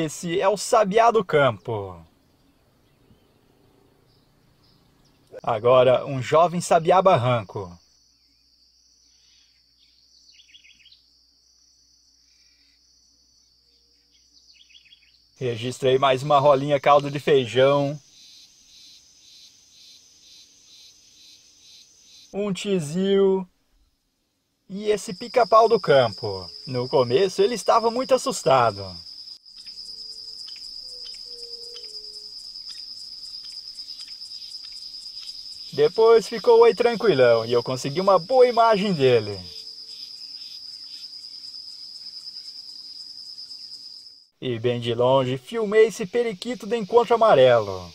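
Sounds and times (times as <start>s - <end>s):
insect trilling: 0.0s - 2.1s, 4.0s - 24.0s, 24.7s - 47.9s
faint bird chirps: 1.4s - 6.0s, 7.8s - 11.3s, 12.1s - 15.7s, 17.8s - 22.4s, 25.6s - 36.4s.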